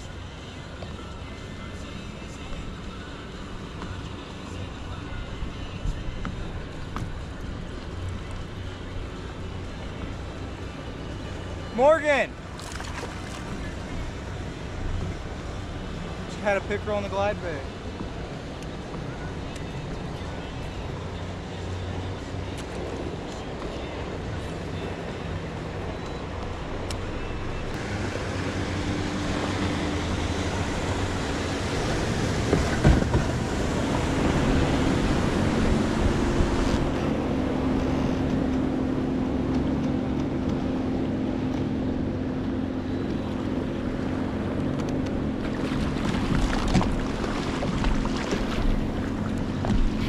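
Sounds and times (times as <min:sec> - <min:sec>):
wind on microphone: 0:27.8 - 0:39.1
water rushing past kayak hull: 0:45.2 - 0:50.0.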